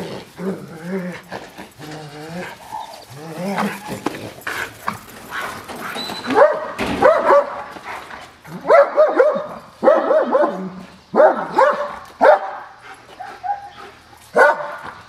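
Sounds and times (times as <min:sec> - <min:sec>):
dog barking: 0:06.3 - 0:07.7, 0:08.5 - 0:13.8, 0:14.4 - 0:15.0.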